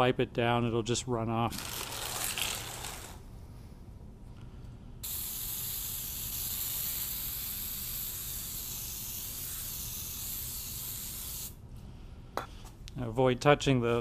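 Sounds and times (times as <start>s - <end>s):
aerosol spray hissing: 5.0s - 11.6s.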